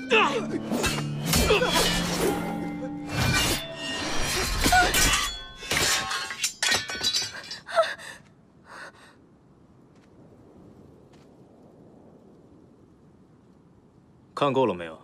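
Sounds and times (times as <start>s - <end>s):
metal blades clashing: 0.7s - 7.6s.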